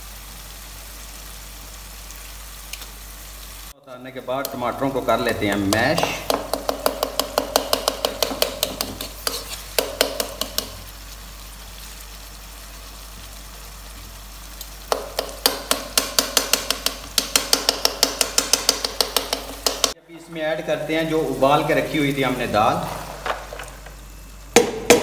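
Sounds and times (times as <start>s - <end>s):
faint sizzle: 0.0s - 25.0s
metal tongs scraping a wok: 8.6s - 9.8s.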